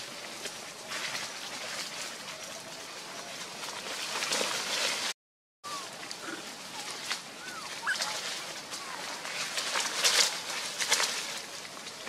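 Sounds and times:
rustling in dry leaves: 0:00.0 - 0:12.0
thin squeaky monkey calls: 0:05.6 - 0:05.9, 0:06.8 - 0:09.2.

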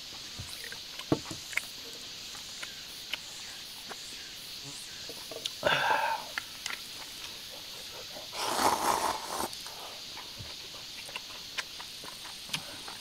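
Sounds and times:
chewing clicks: 0:06.3 - 0:08.8, 0:09.4 - 0:13.0
person slurping soup: 0:08.2 - 0:09.8.

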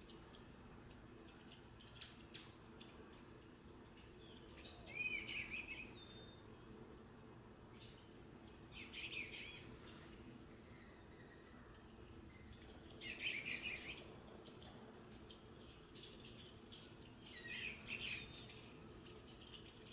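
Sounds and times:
bluebird warbling song: 0:03.9 - 0:06.4, 0:07.8 - 0:19.9.

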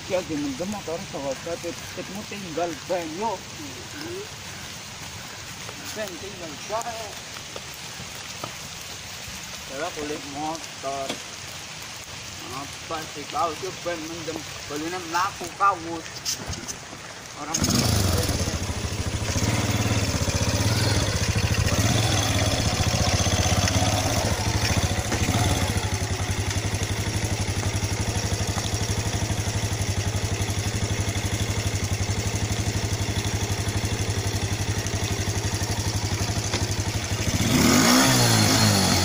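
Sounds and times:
small motorcycle engine running: 0:17.5 - 0:39.0.

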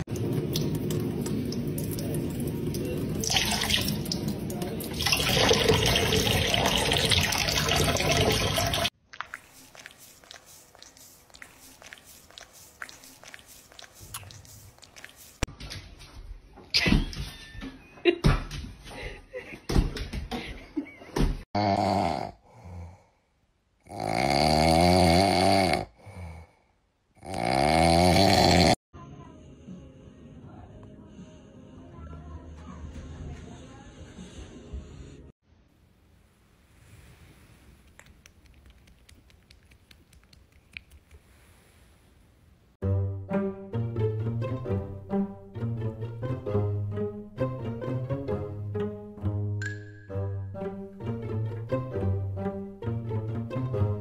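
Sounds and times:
dog snoring: 0:23.8 - 0:26.3, 0:27.2 - 0:28.8.

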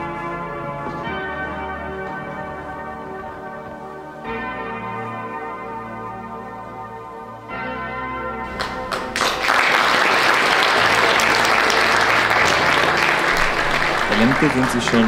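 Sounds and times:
bell-like background music: 0:00.0 - 0:15.0
audience applause: 0:08.5 - 0:15.0.

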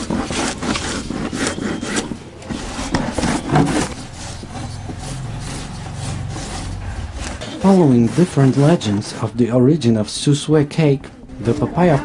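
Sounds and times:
papaya rasping on grater: 0:02.6 - 0:09.3.

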